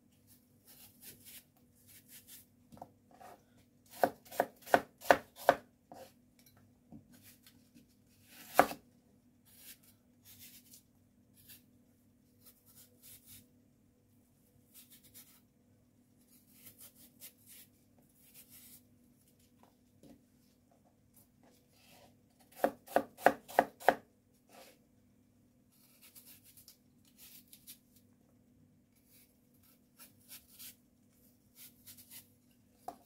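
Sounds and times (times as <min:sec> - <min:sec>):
knife cutting apple: 0:00.6 - 0:06.2, 0:08.2 - 0:11.7, 0:12.4 - 0:13.5, 0:14.7 - 0:15.4, 0:16.2 - 0:18.8, 0:21.9 - 0:24.8, 0:25.7 - 0:28.0, 0:29.0 - 0:30.8, 0:31.5 - 0:33.0.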